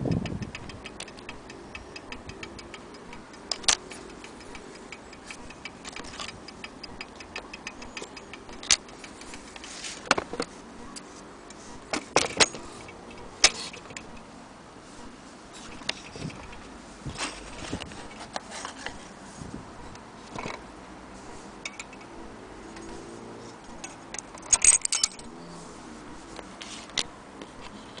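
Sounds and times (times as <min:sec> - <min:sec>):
clock ticking: 0:00.0 - 0:09.7, 0:10.3 - 0:14.4, 0:15.0 - 0:16.8.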